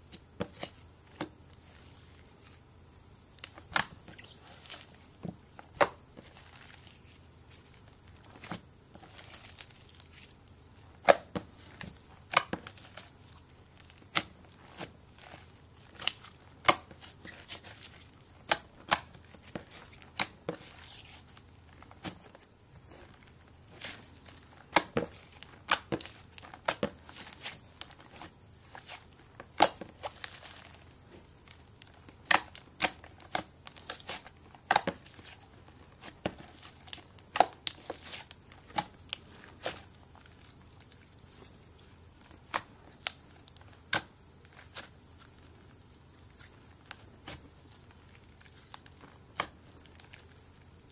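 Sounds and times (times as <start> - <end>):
slime popping and crackling: 23.0 - 41.4.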